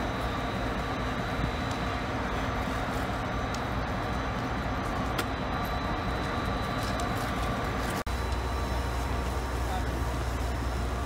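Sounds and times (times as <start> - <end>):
diesel locomotives idling: 0.0 - 11.0.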